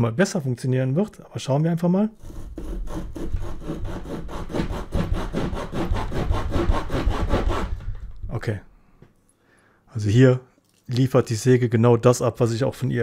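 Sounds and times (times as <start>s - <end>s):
saw cutting through branch: 2.2s - 7.8s.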